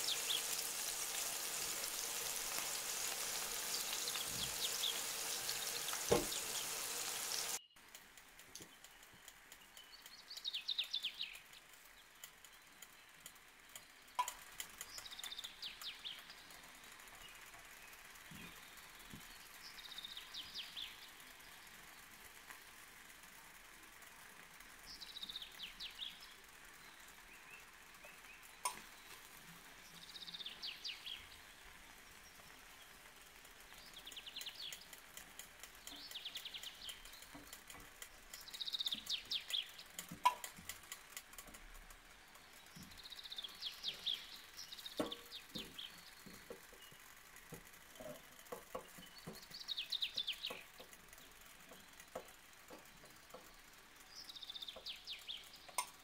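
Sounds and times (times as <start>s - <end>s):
faint steady hiss: 0.0s - 56.0s
sharp clicks: 33.3s - 56.0s.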